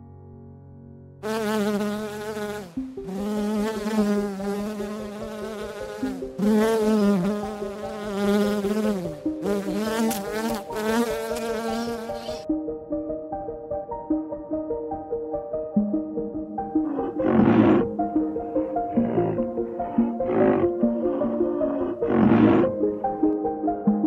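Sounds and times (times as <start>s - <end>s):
bumblebee buzzing: 1.2s - 12.4s, 16.8s - 22.8s.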